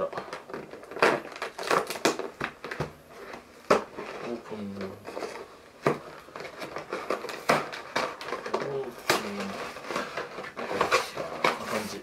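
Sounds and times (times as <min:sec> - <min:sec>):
cardboard carton being torn open: 0:00.1 - 0:02.8, 0:06.3 - 0:12.0.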